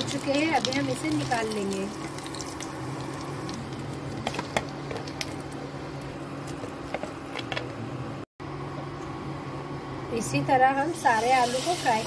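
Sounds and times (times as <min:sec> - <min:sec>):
frying oil sizzling: 0:00.0 - 0:05.6, 0:10.9 - 0:12.0.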